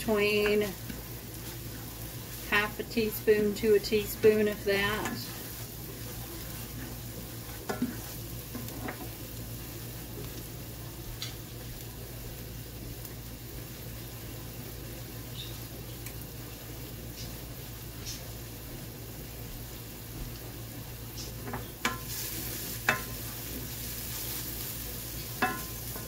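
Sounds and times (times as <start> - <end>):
vegetables sizzling in oil: 0.0 - 26.0
spoon scraping pan: 21.5 - 26.0.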